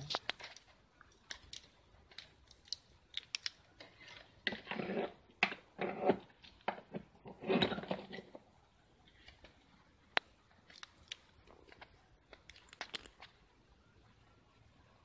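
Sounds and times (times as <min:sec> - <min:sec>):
scraping and rustling: 0:03.8 - 0:08.4.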